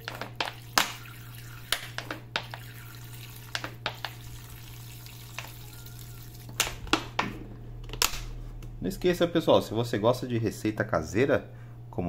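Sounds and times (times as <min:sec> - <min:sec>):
liquid trickling into water: 0:00.0 - 0:06.8.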